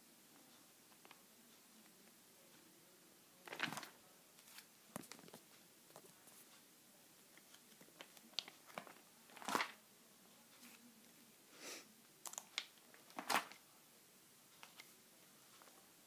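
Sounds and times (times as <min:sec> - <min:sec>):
binder pages turning: 0:03.4 - 0:06.4, 0:07.4 - 0:09.8, 0:12.3 - 0:13.6
plastic sheets crinkling: 0:03.4 - 0:06.5, 0:07.4 - 0:09.8, 0:12.3 - 0:13.6.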